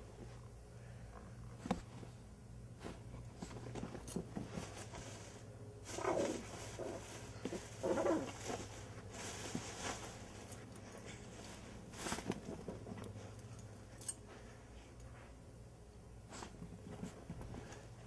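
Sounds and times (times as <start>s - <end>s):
fabric rustling: 2.8s - 12.9s.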